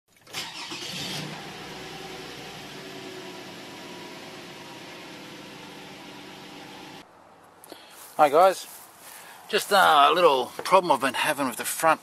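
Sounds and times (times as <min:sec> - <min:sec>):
car engine starting and idling: 0:00.2 - 0:07.0.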